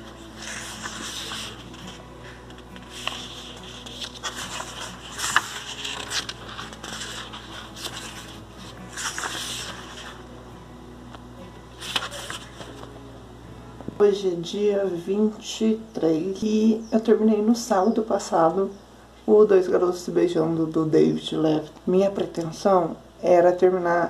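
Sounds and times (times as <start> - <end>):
book pages rustling: 0.0 - 10.3, 11.1 - 12.9.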